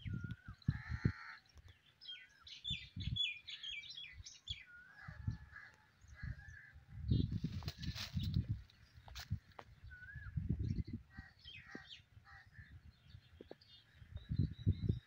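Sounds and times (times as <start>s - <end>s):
wind thuds on microphone: 0.0s - 1.2s, 7.0s - 11.9s, 13.4s - 15.0s.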